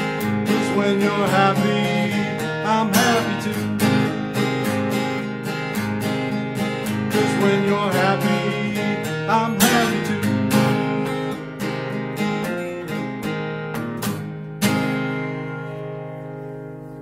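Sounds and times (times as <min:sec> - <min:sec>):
acoustic guitar strumming: 0:00.0 - 0:17.0.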